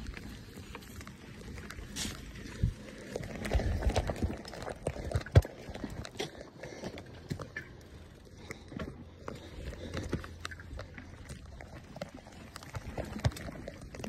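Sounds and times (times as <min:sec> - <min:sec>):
bike rattling and knocking: 0:00.0 - 0:07.7
bike tyres rolling on dirt: 0:00.0 - 0:14.0.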